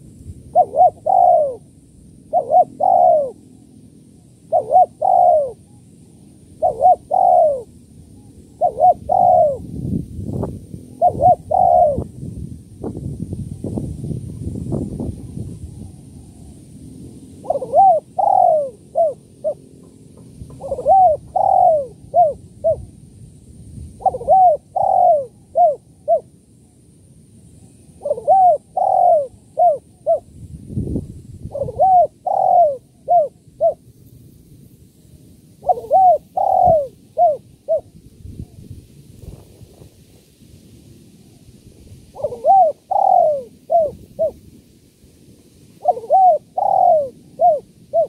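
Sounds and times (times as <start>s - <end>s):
dove cooing: 0.0s - 3.6s, 4.3s - 9.7s, 10.9s - 12.1s, 17.4s - 19.7s, 20.5s - 23.0s, 24.0s - 26.3s, 28.0s - 30.3s, 31.4s - 33.8s, 35.6s - 38.6s, 42.1s - 44.4s, 45.8s - 48.0s.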